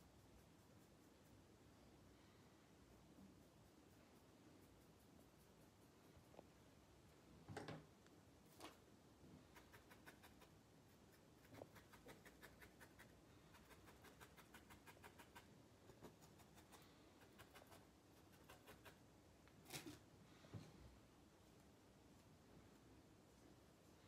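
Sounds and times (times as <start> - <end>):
felting needle scratchy ticks: 9.5 - 19.0.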